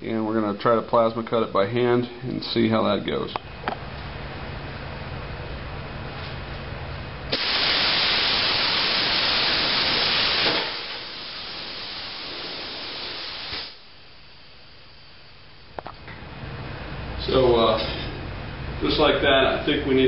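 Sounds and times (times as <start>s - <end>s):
plasma cutter arc hissing: 7.3s - 13.9s.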